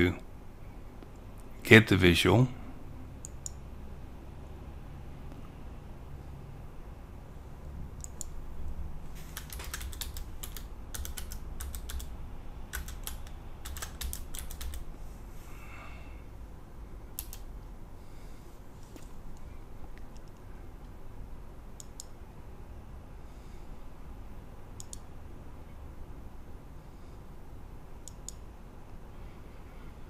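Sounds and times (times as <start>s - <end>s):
low steady hum: 0.0s - 30.0s
keyboard key clicks: 9.4s - 12.1s, 12.8s - 14.8s, 17.2s - 17.5s.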